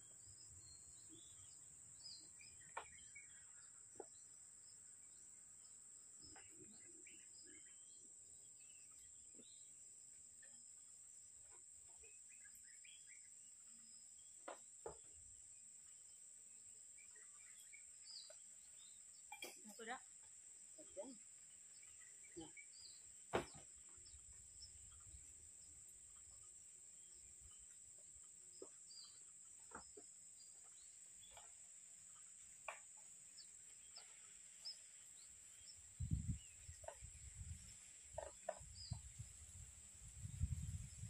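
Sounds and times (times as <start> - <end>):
faint bird chirps: 20.8 - 31.5.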